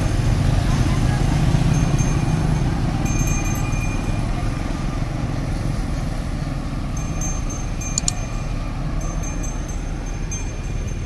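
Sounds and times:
road traffic rumble: 0.0 - 11.0
wind: 0.0 - 11.0
click: 8.0 - 8.2.

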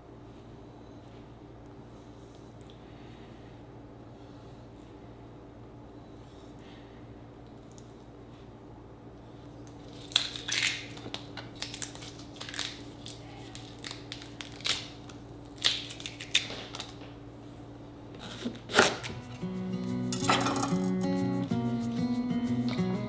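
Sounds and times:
steady low hum: 0.0 - 23.0
crisp cutting sounds: 9.7 - 17.0
acoustic guitar music: 19.1 - 23.0.

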